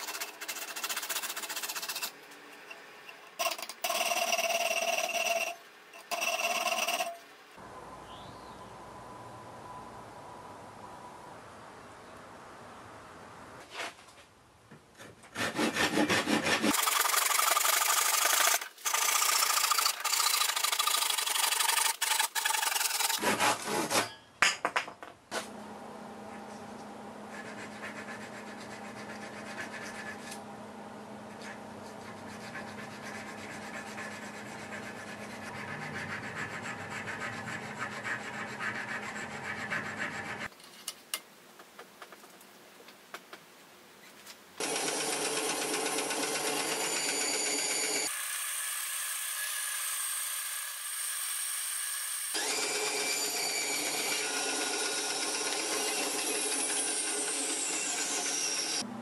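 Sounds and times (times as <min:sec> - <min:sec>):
hand saw cutting wood: 0:00.0 - 0:02.2, 0:15.3 - 0:24.2, 0:52.3 - 0:58.8
file rasping on brass: 0:15.4 - 0:16.9, 0:32.0 - 0:40.5.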